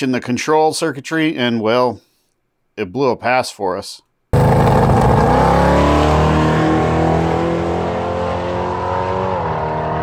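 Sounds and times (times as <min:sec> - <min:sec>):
drag car accelerating: 0:04.4 - 0:10.0.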